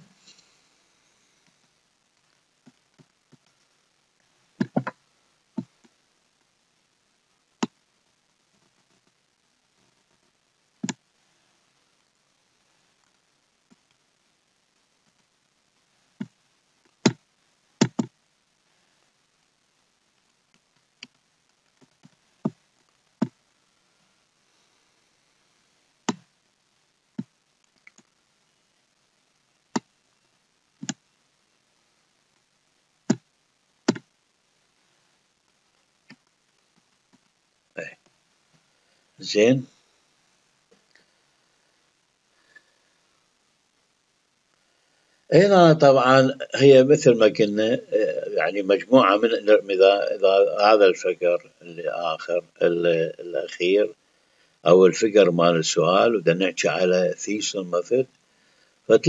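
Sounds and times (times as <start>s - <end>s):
faint ticks: 29.7s - 31.1s.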